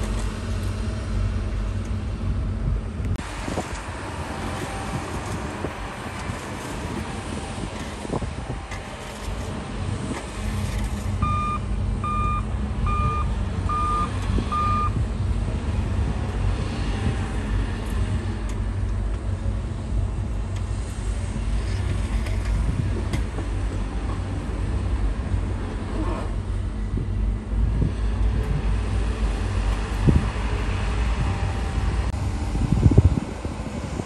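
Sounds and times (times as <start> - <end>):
heavy diesel machinery running: 0.0 - 34.0
reversing alarm beeping: 11.2 - 15.0.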